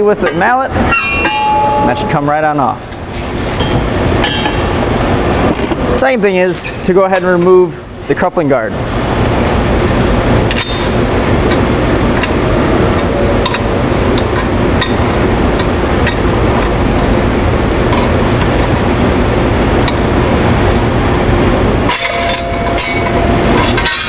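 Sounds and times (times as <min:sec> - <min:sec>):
machinery drone: 0:08.7 - 0:24.0.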